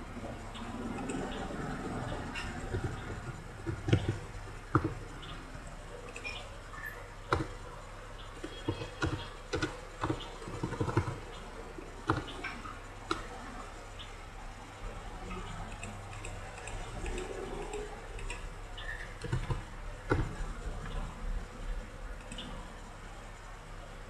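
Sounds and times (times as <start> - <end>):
low steady hum: 0.0 - 24.0
mouse buttons clicking: 8.4 - 11.2.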